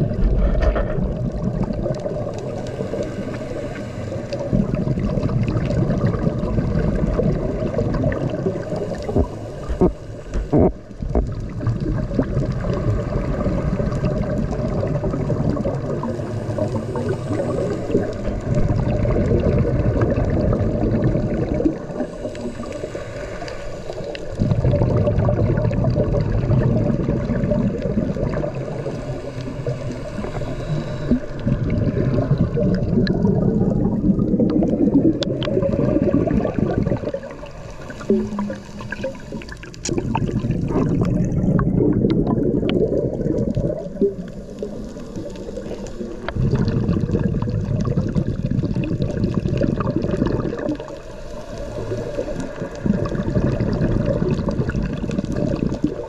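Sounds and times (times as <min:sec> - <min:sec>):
underwater bubbling and gurgling: 0:00.0 - 0:56.0.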